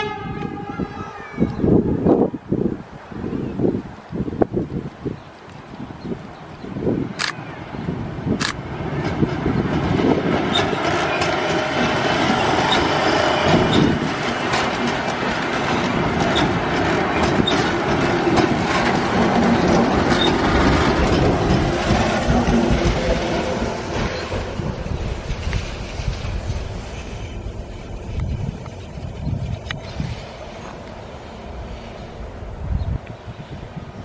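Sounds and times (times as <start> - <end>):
train wheels rumbling on rail: 0.0 - 2.8, 5.6 - 34.0
wheels clacking over rail joints: 7.6 - 28.8.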